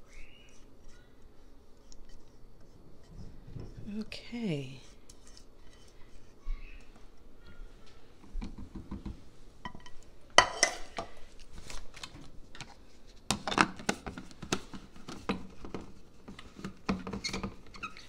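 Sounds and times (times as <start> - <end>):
hard plastic knocking and clattering: 8.2 - 9.2, 13.3 - 17.7.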